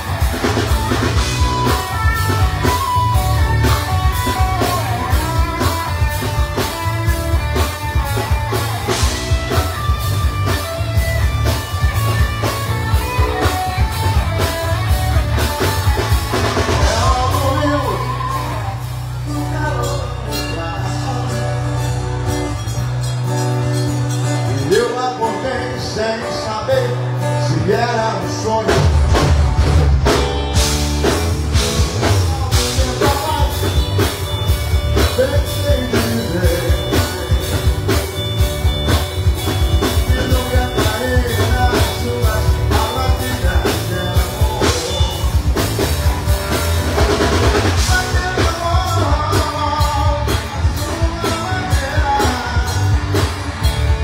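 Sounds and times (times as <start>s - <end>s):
bass guitar: 0.0s - 54.0s
drum kit: 0.0s - 54.0s
guitars: 0.0s - 54.0s
man singing: 15.9s - 22.2s, 24.4s - 29.2s, 31.5s - 38.1s, 39.5s - 46.2s, 47.6s - 53.4s.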